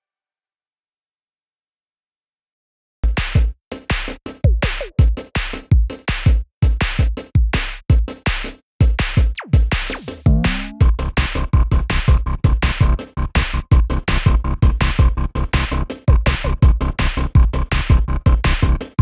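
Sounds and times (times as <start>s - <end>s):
electronic music with drum-machine beat: 3.1s - 19.0s
synth pitch glides: 10.3s - 10.9s.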